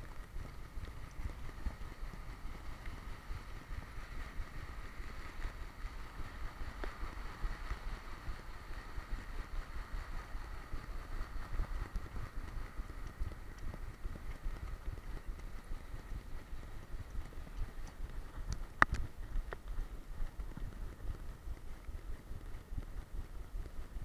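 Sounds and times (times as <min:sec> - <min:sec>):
wind noise on microphone: 0:00.0 - 0:24.0
camera thumping and jostling: 0:10.8 - 0:24.0.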